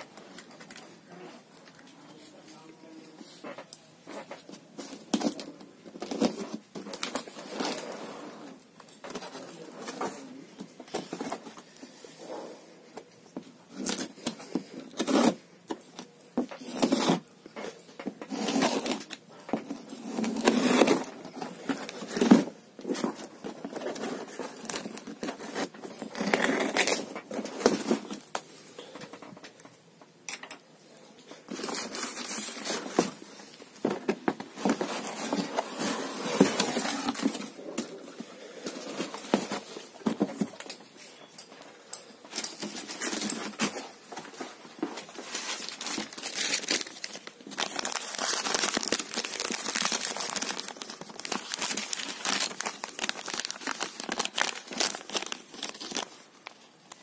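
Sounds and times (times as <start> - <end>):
cardboard flaps scraping and rustling: 31.5 - 40.6.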